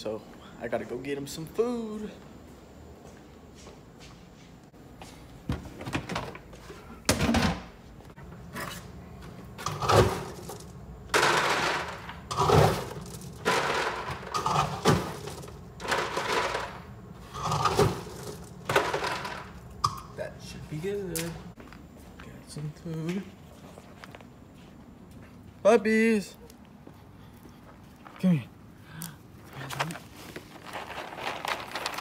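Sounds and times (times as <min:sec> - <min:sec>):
dry kibble rattling into plastic container: 0:29.8 - 0:32.0.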